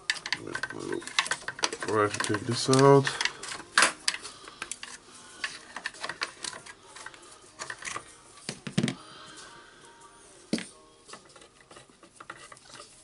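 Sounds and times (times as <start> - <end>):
plastic and metal parts clicking: 0.0 - 9.0.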